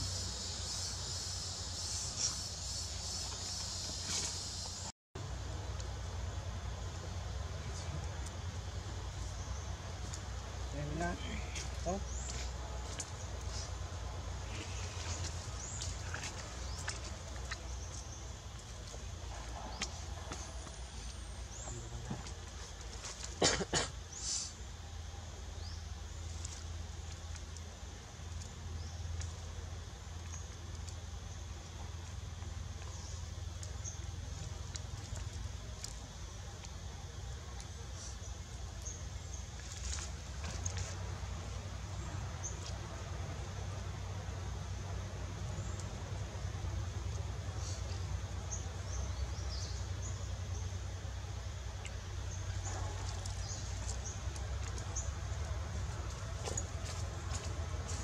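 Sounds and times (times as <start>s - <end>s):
steady low hum: 0.0s - 58.0s
brief hiss: 24.1s - 24.6s.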